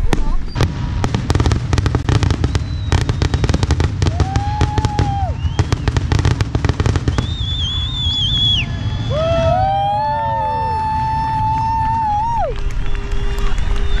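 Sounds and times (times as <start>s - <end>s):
continuous low rumble: 0.0s - 14.0s
fireworks bursting: 0.0s - 14.0s
high wavering whistle: 7.0s - 14.0s.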